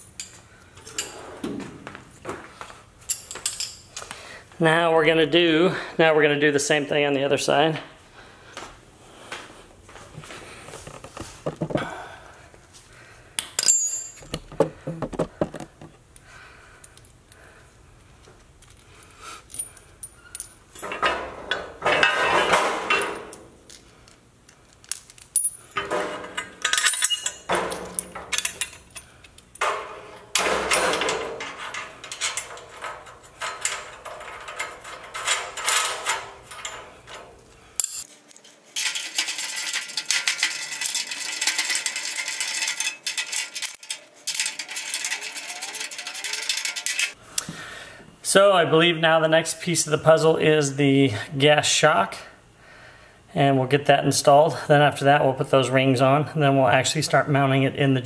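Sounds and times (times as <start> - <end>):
metal bolts clinking: 3.1 - 3.9, 13.4 - 15.0, 19.5 - 47.2.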